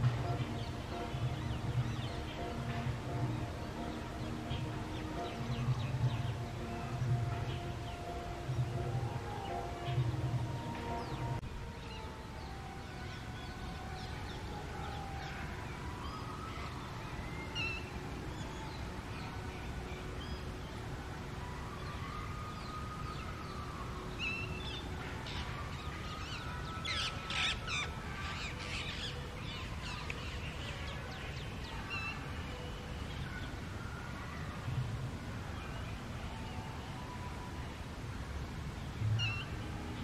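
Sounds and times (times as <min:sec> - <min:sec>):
garden birds calling: 0:00.0 - 0:40.0.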